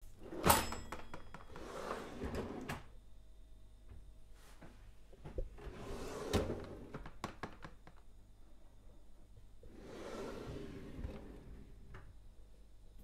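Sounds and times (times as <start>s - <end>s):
drawer sliding on runners: 1.6s - 2.8s, 5.6s - 7.0s, 9.7s - 11.8s.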